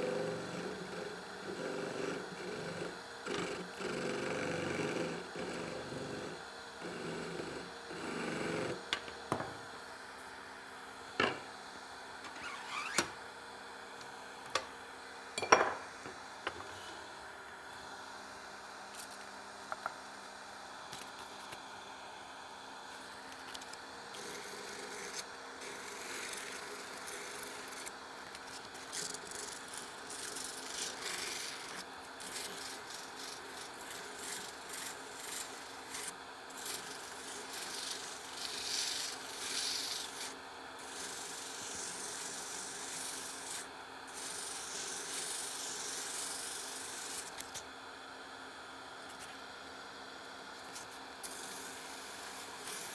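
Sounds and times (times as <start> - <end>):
lathe humming: 0.0 - 12.7, 23.8 - 28.8, 29.6 - 43.6.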